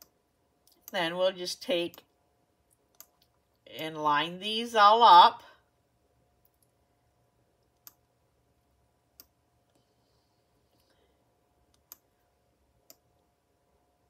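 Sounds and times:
faint steady hum: 0:00.0 - 0:14.0
computer mouse clicks: 0:02.7 - 0:03.4, 0:07.6 - 0:08.1, 0:09.2 - 0:09.9, 0:11.7 - 0:12.1.

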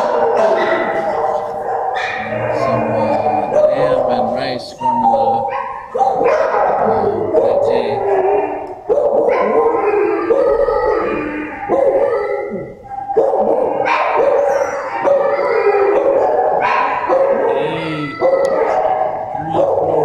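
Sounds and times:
dogs barking and howling: 0:00.0 - 0:20.0.

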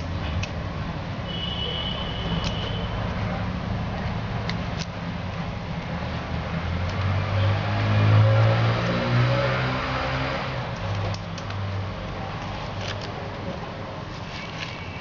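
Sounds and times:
vehicle engine passing by: 0:06.4 - 0:10.7.

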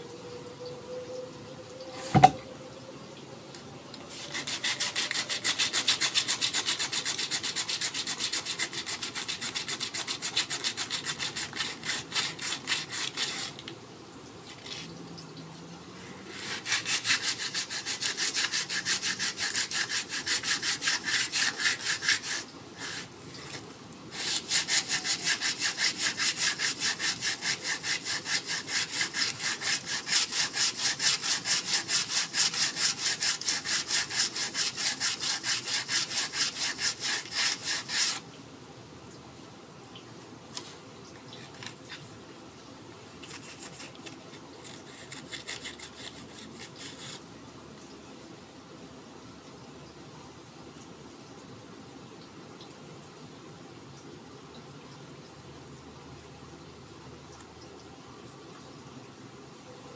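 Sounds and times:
sharp knock: 0:02.1 - 0:02.4
sandpaper rasping on wood: 0:04.1 - 0:13.6, 0:16.3 - 0:38.2, 0:43.2 - 0:47.2.

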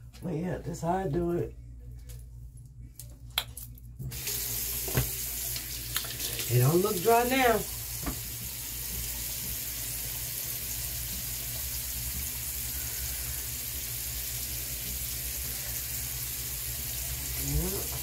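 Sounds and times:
steady hiss: 0:04.2 - 0:17.5.

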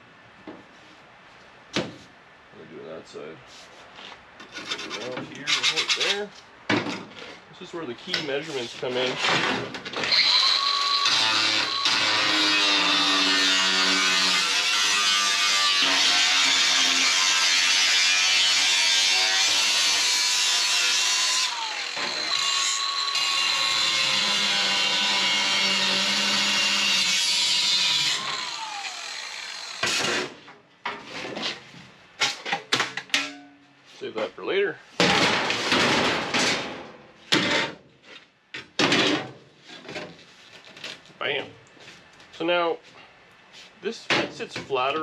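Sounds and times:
angle grinder cutting sheet metal: 0:10.1 - 0:30.4
clanks of sheet metal: 0:32.2 - 0:33.6.

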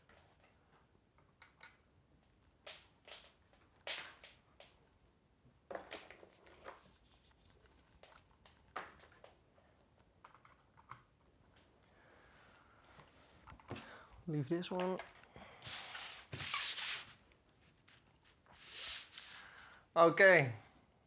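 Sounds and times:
cable clicks and rustles: 0:00.0 - 0:12.0, 0:14.5 - 0:15.4.

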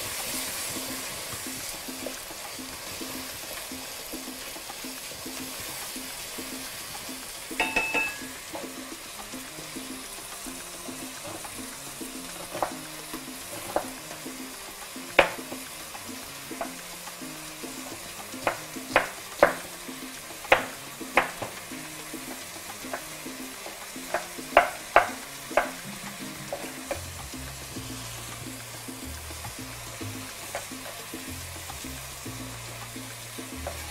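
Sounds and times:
food sizzling in a pan: 0:00.0 - 0:33.9
soft background music: 0:00.0 - 0:33.9
knife chopping on wooden board: 0:12.4 - 0:12.8, 0:13.5 - 0:14.0, 0:15.2 - 0:15.5, 0:18.4 - 0:19.7, 0:20.5 - 0:21.6, 0:24.1 - 0:25.9.

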